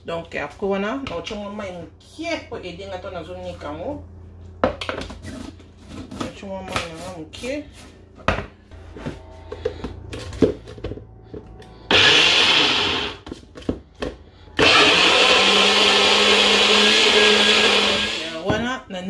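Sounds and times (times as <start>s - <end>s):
blender motor running: 11.8s - 13.2s, 14.6s - 18.4s.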